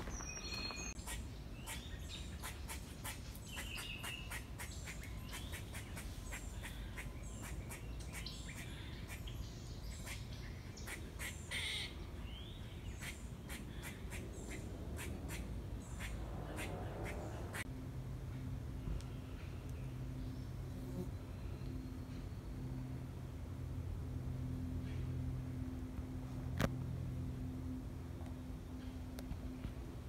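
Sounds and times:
birds chirping and calling: 0.0s - 17.7s
steady low rumble: 12.1s - 30.0s.

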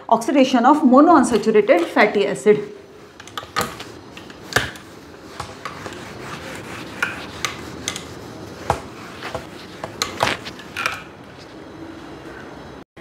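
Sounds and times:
duster rubbing whiteboard: 3.0s - 10.9s.

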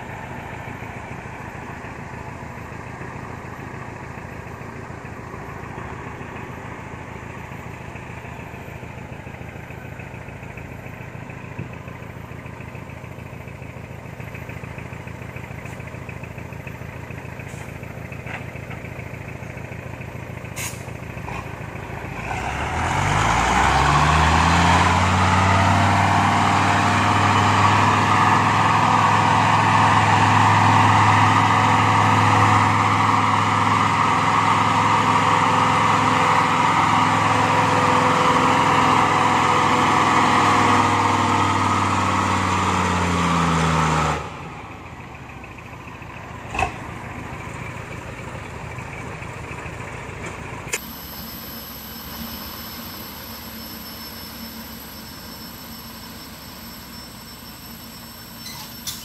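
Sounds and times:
truck engine revving under load: 20.4s - 57.0s.

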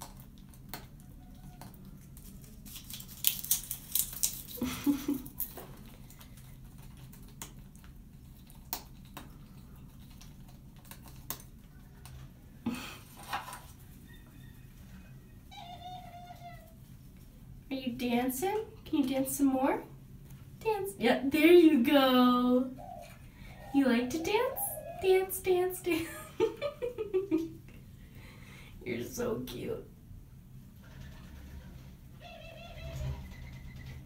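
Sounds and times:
parrot cracking peanut shell: 0.0s - 12.2s.

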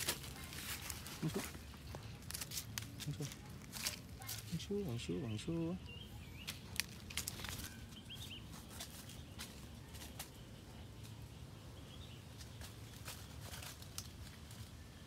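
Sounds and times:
dry leaves crackling and rustling: 0.0s - 15.0s
faint bird chirps: 4.2s - 13.6s.

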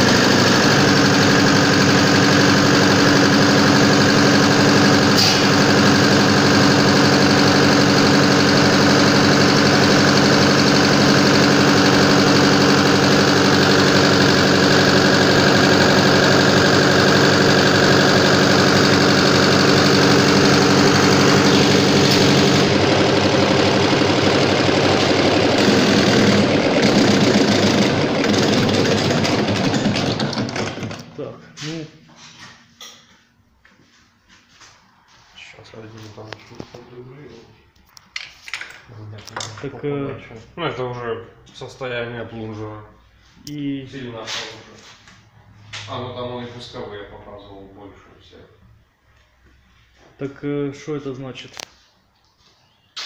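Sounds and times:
injection pump test bench running: 0.0s - 37.4s.

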